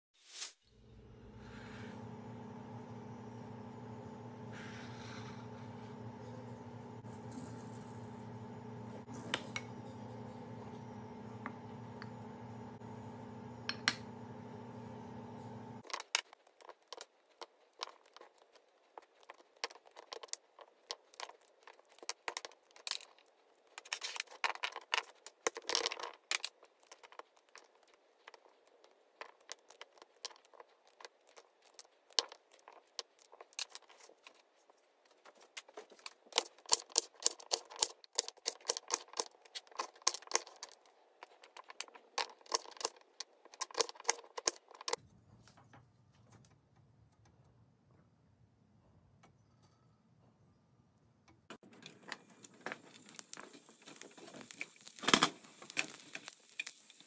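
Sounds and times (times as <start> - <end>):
steady hum: 0.8 - 15.8.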